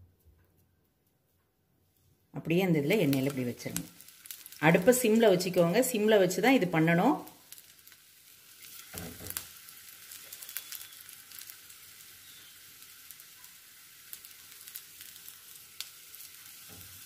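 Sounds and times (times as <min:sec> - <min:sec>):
oil sizzling in a frying pan: 0:02.4 - 0:17.0.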